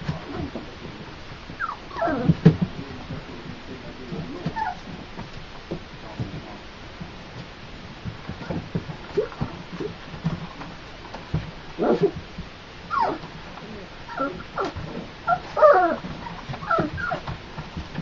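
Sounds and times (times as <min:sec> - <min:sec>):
puppies scuffling: 0:00.0 - 0:18.0
puppies whimpering and yipping: 0:01.6 - 0:02.5, 0:04.5 - 0:05.0, 0:12.9 - 0:13.2, 0:14.1 - 0:17.3.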